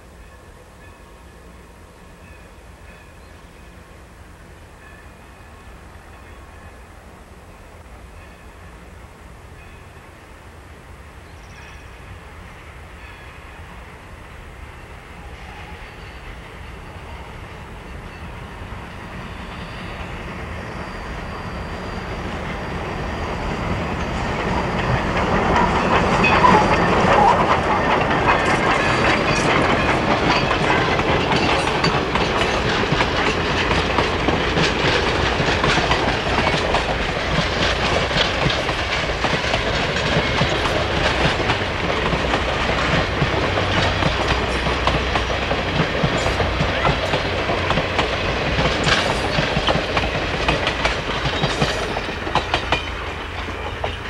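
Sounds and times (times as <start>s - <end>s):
steam locomotive passing: 0.0s - 54.0s
train wheels clattering over rail joints: 23.7s - 54.0s.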